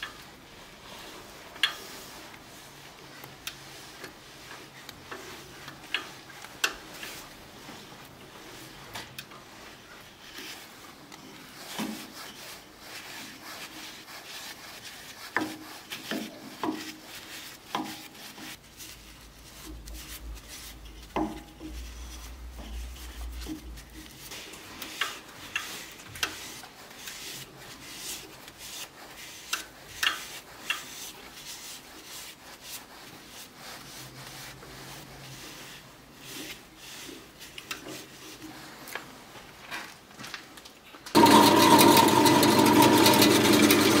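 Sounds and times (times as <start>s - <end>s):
cloth rubbing on wood: 6.4s - 39.3s.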